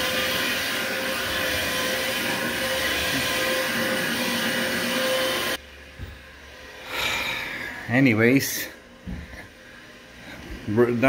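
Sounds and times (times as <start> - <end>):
carpet scrubbing machine running: 0.0 - 11.0.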